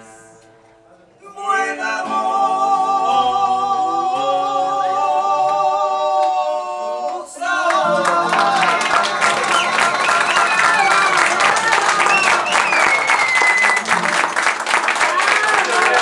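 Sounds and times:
acoustic guitar: 0.0s - 15.0s
person singing: 1.2s - 12.2s.

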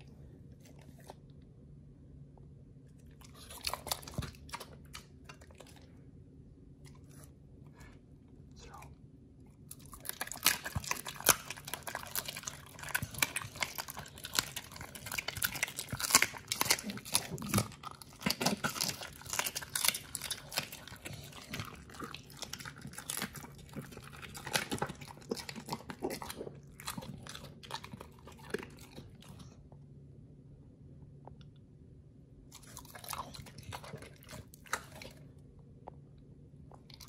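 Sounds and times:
wet chewing: 2.9s - 6.0s, 9.5s - 29.6s, 32.5s - 35.3s
dog crunching bones: 3.0s - 6.0s, 9.6s - 29.5s, 32.5s - 35.3s.

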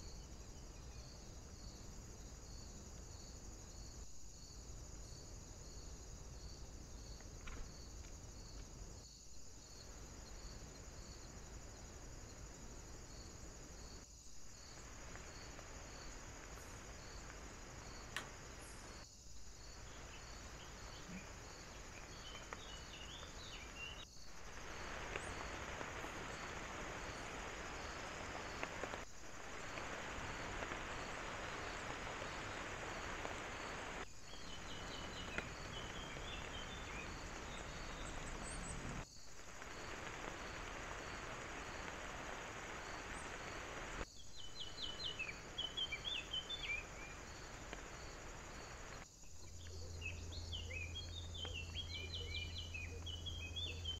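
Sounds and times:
steady hiss: 0.0s - 54.0s
small birds singing: 17.8s - 24.1s, 31.1s - 39.0s, 44.2s - 47.4s, 49.2s - 54.0s.

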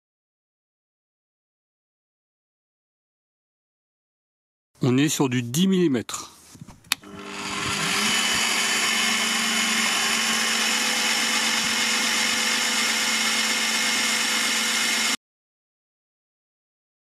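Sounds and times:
pillar drill motor humming: 6.9s - 15.2s.

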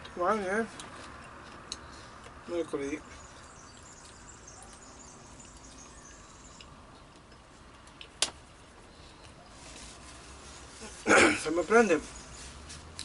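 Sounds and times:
faint high chirping: 2.8s - 6.8s.

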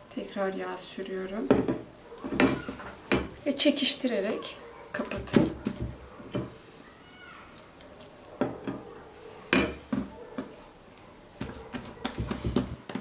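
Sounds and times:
hands knocking dough on wooden table: 11.4s - 13.0s.

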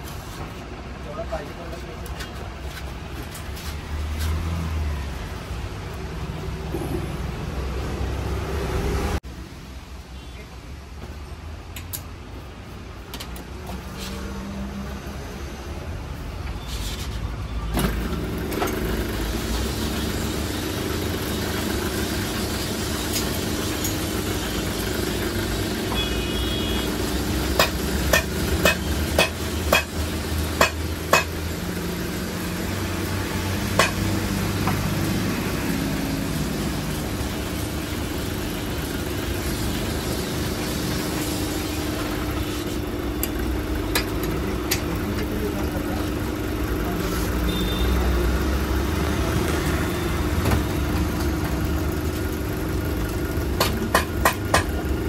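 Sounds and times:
sharp knocks: 30.6s - 31.4s.

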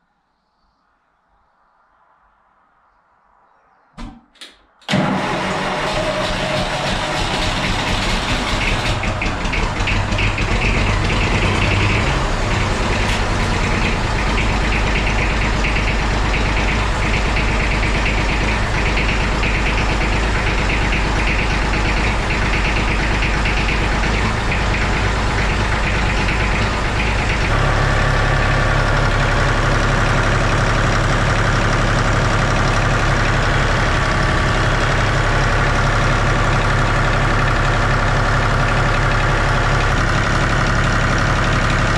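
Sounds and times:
tractor diesel engine running: 4.9s - 41.9s.

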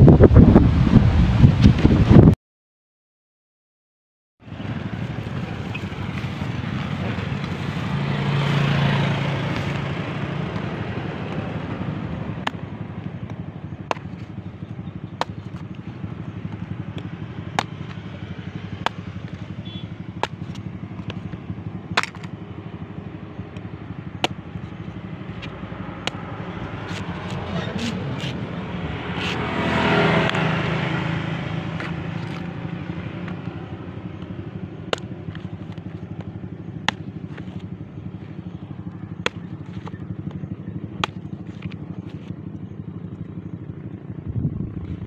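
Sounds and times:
vehicle passing: 4.4s - 45.0s
knife chopping coconut: 12.3s - 22.4s, 23.5s - 28.4s, 34.2s - 37.8s, 38.5s - 42.3s.

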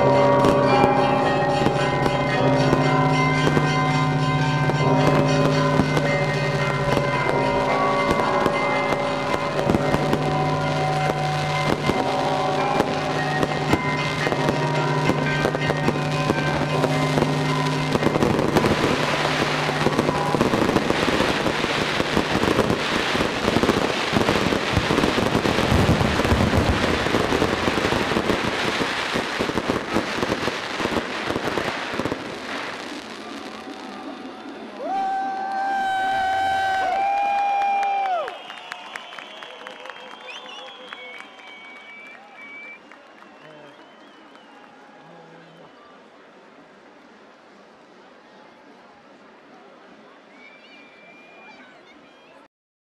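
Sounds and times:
music with long held tones: 0.0s - 36.8s
fireworks bangs and crackles: 0.0s - 42.8s.

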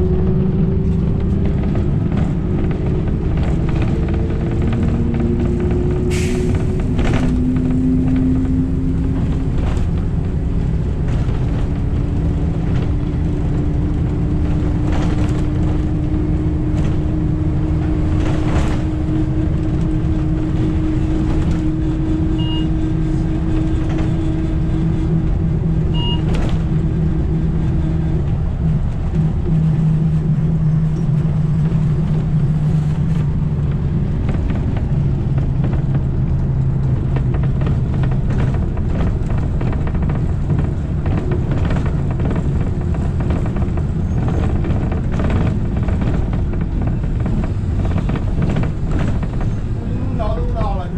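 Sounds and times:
bus and road rumble: 0.0s - 50.9s.

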